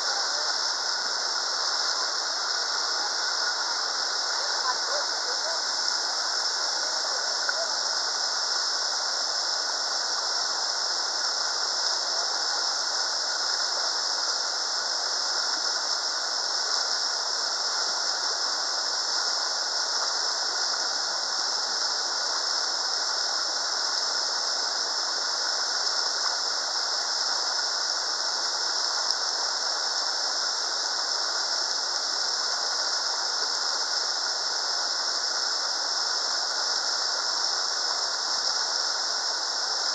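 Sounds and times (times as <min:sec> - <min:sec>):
river rapids rushing: 0:00.0 - 0:22.8.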